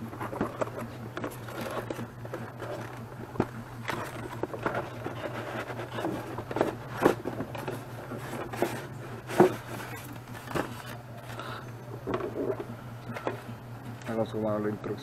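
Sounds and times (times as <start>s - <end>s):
cardboard box scraping and rustling: 0.0s - 11.4s.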